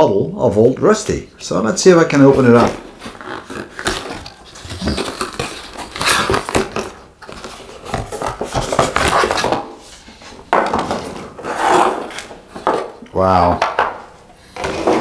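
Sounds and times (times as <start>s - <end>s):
packaging rustling and scraping: 2.2s - 13.0s.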